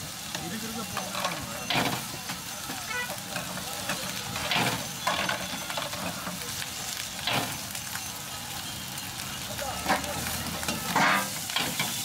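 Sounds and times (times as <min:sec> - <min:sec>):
rice sizzling in a wok: 0:00.0 - 0:12.0
loud strokes in wok: 0:09.8 - 0:12.0.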